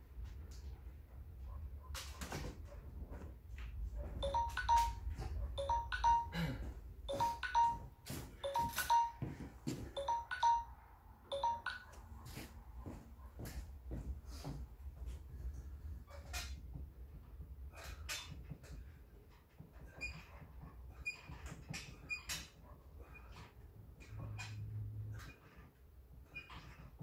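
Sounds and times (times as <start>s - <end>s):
short ringing tones in pairs: 4.2s - 6.5s, 7.1s - 9.3s, 10.0s - 12.0s.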